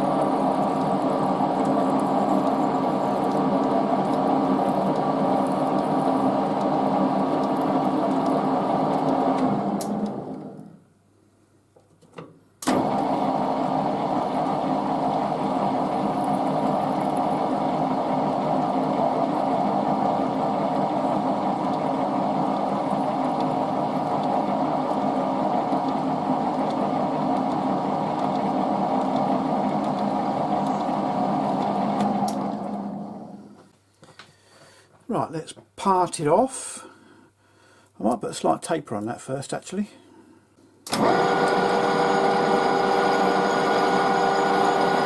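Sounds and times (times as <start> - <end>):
metal lathe drilling humming: 41.0 - 45.0.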